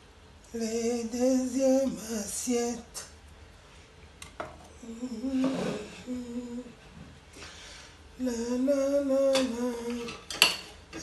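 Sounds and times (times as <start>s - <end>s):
woman humming: 4.8s - 6.8s.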